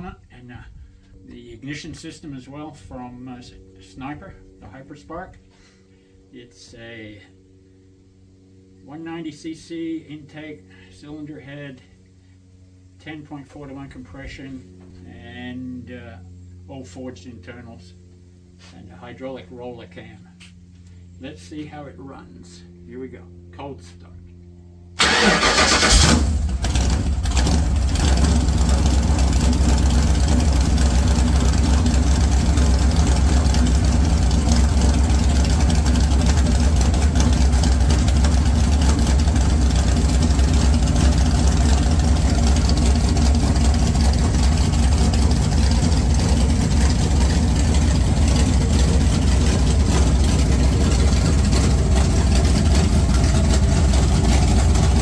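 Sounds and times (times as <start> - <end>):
engine starting and idling: 25.0 - 55.0.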